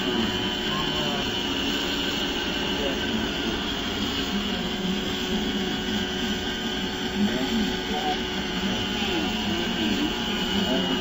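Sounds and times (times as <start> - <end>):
faint voices: 0.0 - 11.0
toy wheel loader humming and whining: 0.0 - 11.0.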